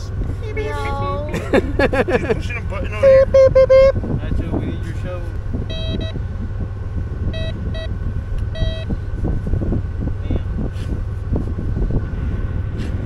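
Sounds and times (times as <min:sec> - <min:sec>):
steady low rumble: 0:00.0 - 0:13.0
metal detector beeping: 0:03.0 - 0:03.9, 0:05.7 - 0:06.2, 0:07.4 - 0:07.9, 0:08.5 - 0:08.9.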